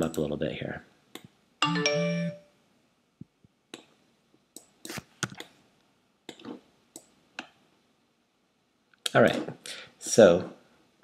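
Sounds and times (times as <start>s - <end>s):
mouse and keyboard clicks: 6.3s - 7.6s.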